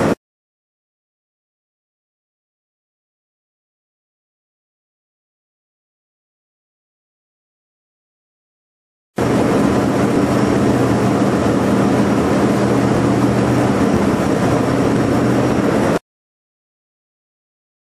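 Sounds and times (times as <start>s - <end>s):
boat engine drone: 9.2s - 16.0s
churning wake rushing: 9.2s - 16.0s.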